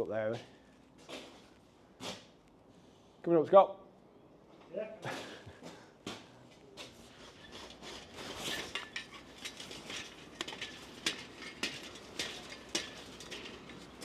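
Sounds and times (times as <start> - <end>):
clinks on steel scaffold tubes: 7.4 - 14.0.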